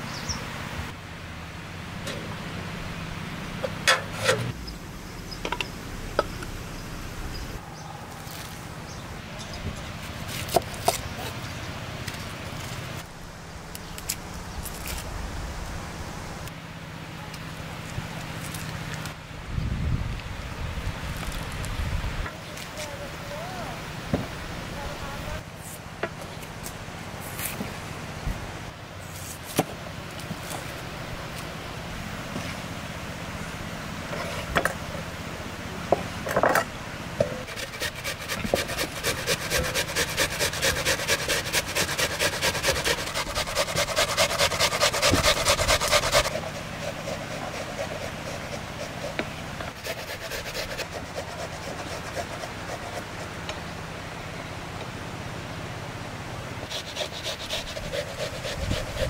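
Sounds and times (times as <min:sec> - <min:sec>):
onion grated on metal grater: 0:37.5 - 0:49.2, 0:49.8 - 0:53.1, 0:56.7 - 0:59.0.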